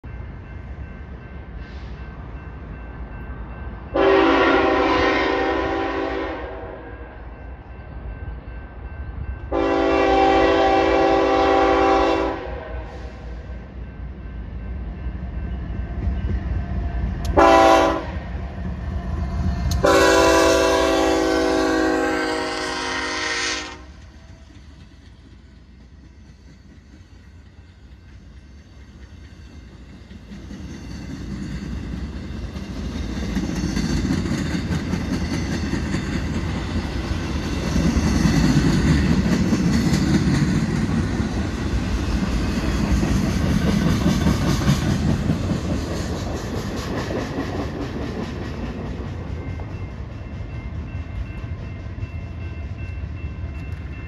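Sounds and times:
train rumbling: 0:00.0 - 0:54.0
locomotive air horn blasts: 0:04.0 - 0:07.0, 0:09.5 - 0:13.4, 0:17.3 - 0:18.2, 0:19.8 - 0:24.0.

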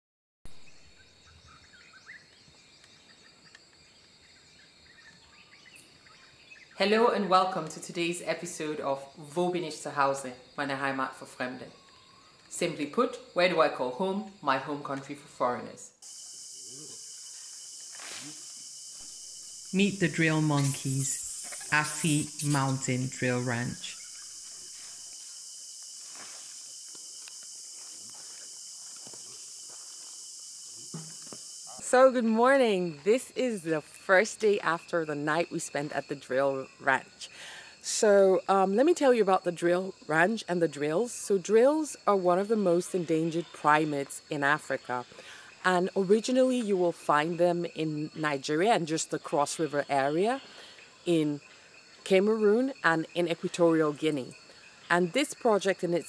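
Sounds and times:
high-pitched insect chorus: 0:00.5 - 0:56.0
high-pitched insect drone: 0:15.9 - 0:37.2.

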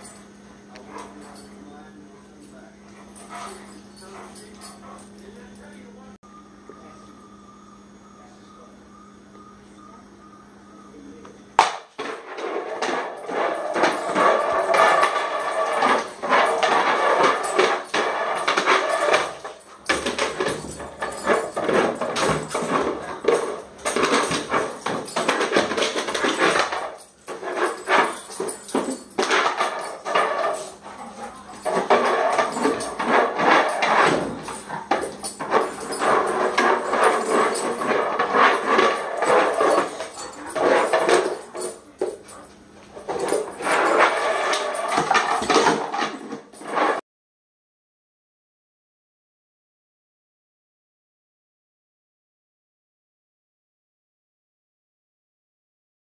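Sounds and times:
bowl scraping on tile floor: 0:12.0 - 0:41.8, 0:43.0 - 0:47.0.

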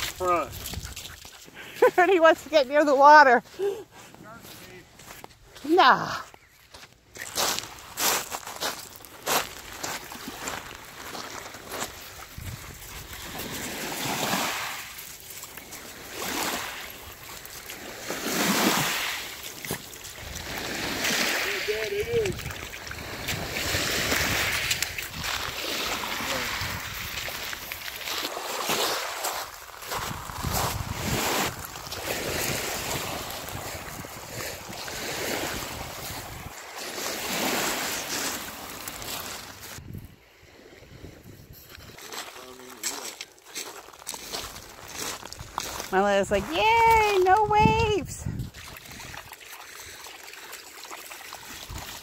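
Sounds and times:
wind buffeting microphone: 0:12.2 - 0:13.8, 0:21.7 - 0:27.7, 0:29.9 - 0:36.6, 0:39.8 - 0:40.2, 0:45.2 - 0:49.2
waves washing onto pebble beach: 0:13.1 - 0:39.8.

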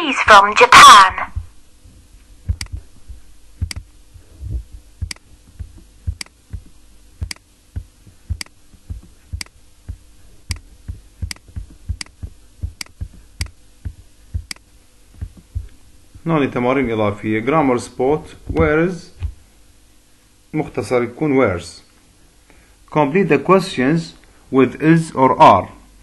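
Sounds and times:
faint steady hum: 0:00.0 - 0:26.0
computer mouse clicking: 0:02.5 - 0:02.8, 0:03.6 - 0:03.8, 0:05.0 - 0:07.4, 0:08.3 - 0:09.6, 0:10.5 - 0:12.2, 0:12.8 - 0:13.6, 0:14.4 - 0:14.6.

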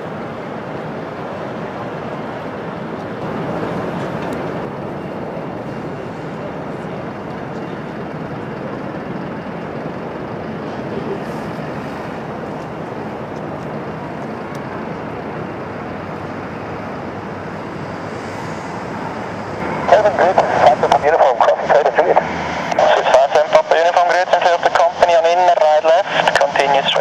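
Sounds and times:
jet engine rumble: 0:00.0 - 0:27.0.

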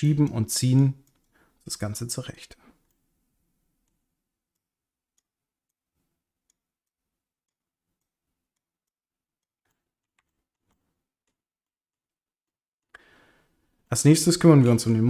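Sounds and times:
quiet clicks: 0:01.0 - 0:01.4.

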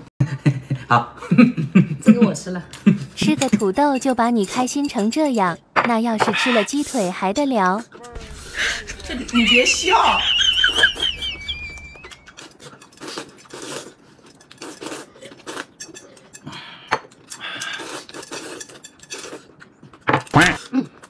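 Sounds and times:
high-pitched laugh: 0:08.6 - 0:12.3.

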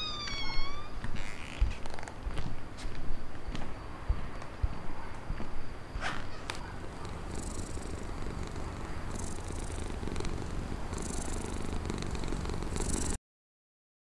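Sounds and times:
animal purring: 0:06.7 - 0:13.2.

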